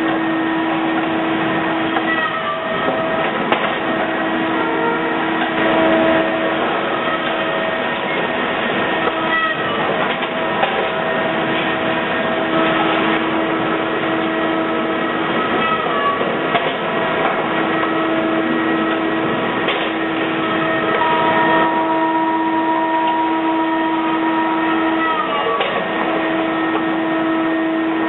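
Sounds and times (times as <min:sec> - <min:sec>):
industrial machine drone: 0:00.0 - 0:28.0
short falling whines: 0:17.7 - 0:28.0.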